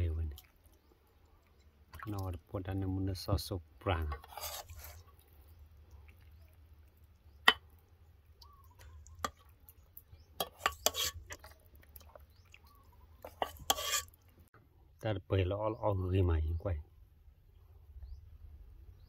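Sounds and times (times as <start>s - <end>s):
metal ladle clinking on pot: 10.4s - 11.3s.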